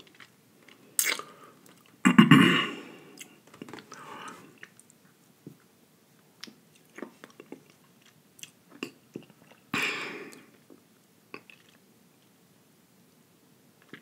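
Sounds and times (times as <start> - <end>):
person chewing with wet mouth clicks: 10.3 - 11.8.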